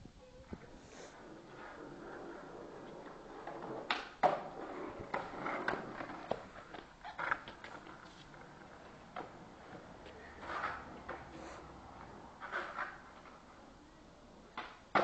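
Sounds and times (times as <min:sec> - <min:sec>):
skateboard wheels rolling on concrete: 0:00.0 - 0:15.0
skateboard clacking on ground: 0:00.5 - 0:13.6, 0:14.5 - 0:15.0.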